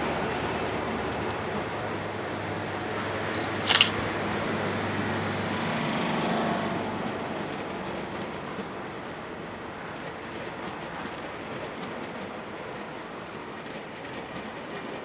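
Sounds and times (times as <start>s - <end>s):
camera shutter click: 3.2s - 3.9s.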